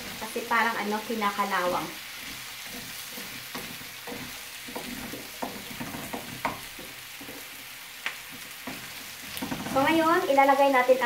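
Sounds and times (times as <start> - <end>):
vegetables sizzling in a frying pan: 0.0 - 11.0
spatula scraping a pan: 1.4 - 10.2.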